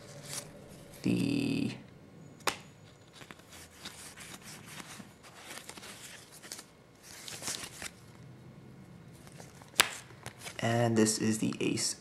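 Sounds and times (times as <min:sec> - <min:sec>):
playing cards sliding and clicking: 0:00.1 - 0:01.2, 0:02.4 - 0:08.0
card snap: 0:09.7 - 0:10.4.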